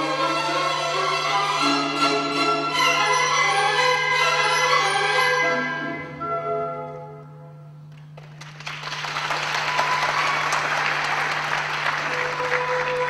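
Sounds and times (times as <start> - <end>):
classical ballet music: 0.0 - 8.2, 11.6 - 13.0
audience applauding: 7.9 - 13.0.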